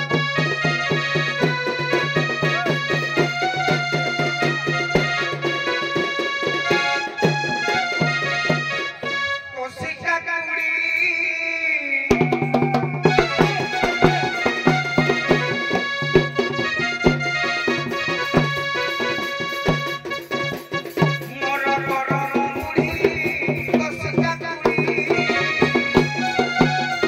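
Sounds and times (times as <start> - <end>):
drum strikes: 0.0 - 9.3, 12.1 - 27.0
harmonium chords: 0.0 - 10.6, 13.1 - 23.0
man singing: 8.7 - 19.6, 21.0 - 27.0.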